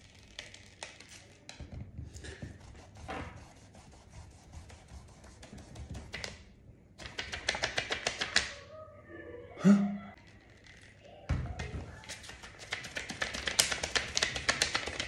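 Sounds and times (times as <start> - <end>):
fingertips tapping on paper: 2.2 - 8.5, 12.0 - 15.0.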